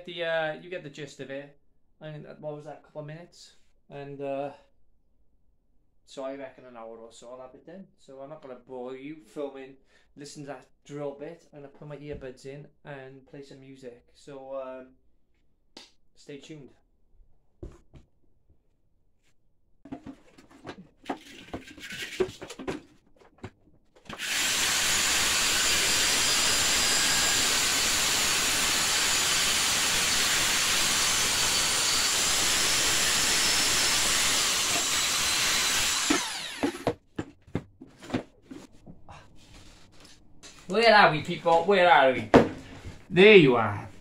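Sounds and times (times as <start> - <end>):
grinder disc winding down: 24.1 - 36.9
power grinder grinding metal: 24.1 - 36.9.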